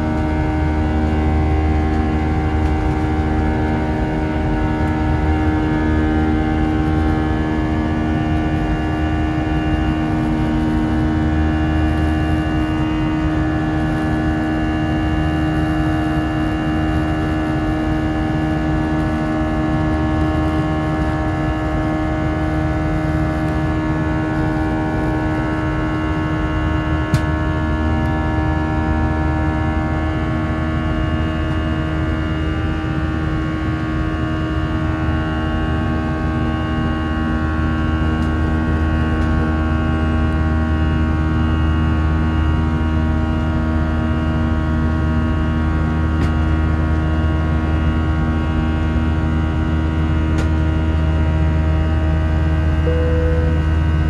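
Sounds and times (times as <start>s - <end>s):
jet engine drone in cabin: 0.0s - 54.0s
buzzsaw tones from fan: 47.1s - 54.0s.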